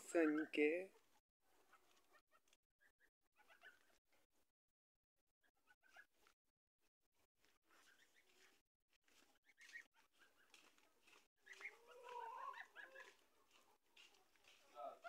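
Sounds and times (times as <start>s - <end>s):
young geese peeping: 11.4s - 13.2s.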